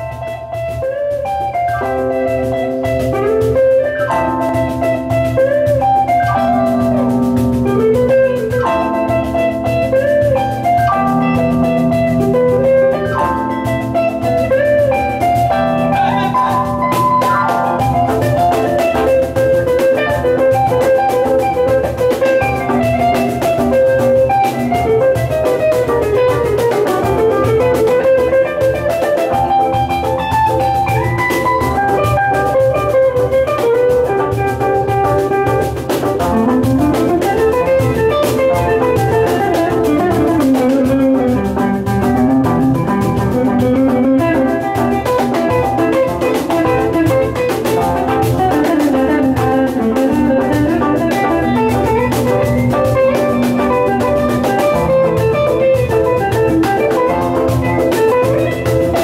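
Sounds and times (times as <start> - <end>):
electric guitar: 0.0 - 59.0
electronic keyboard melody: 0.0 - 59.0
steady drum beat: 0.0 - 59.0.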